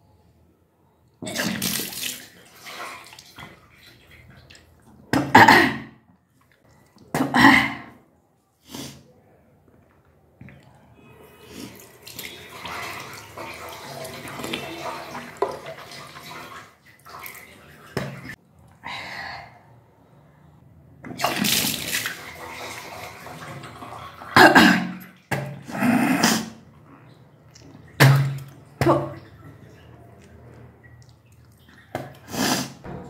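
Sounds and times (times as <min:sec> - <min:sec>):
liquid splashing into basin: 0:01.2 - 0:05.3, 0:11.4 - 0:18.7, 0:21.1 - 0:25.7, 0:26.5 - 0:33.0
woman retching: 0:05.2 - 0:06.0, 0:07.2 - 0:08.0, 0:24.4 - 0:25.0, 0:25.6 - 0:26.6.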